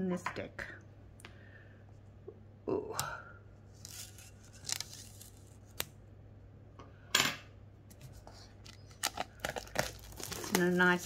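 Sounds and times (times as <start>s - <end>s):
plastic wrap crackling: 3.7s - 6.0s, 8.2s - 11.0s
plastic film ripping: 3.8s - 6.0s, 8.6s - 11.0s.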